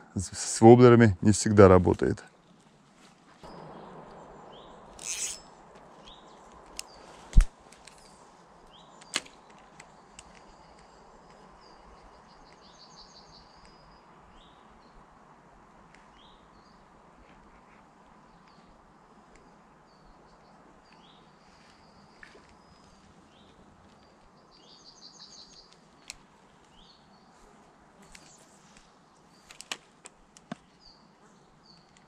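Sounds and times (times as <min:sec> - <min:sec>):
small birds chirping: 0:03.4 - 0:15.2, 0:15.8 - 0:32.0
fishing line whoosh: 0:03.5 - 0:05.7
fishing reel clicks: 0:05.0 - 0:05.4.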